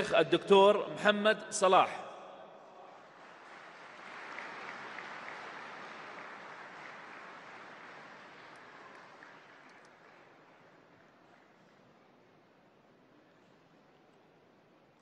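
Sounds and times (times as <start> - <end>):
audience applauding: 2.9 - 10.8.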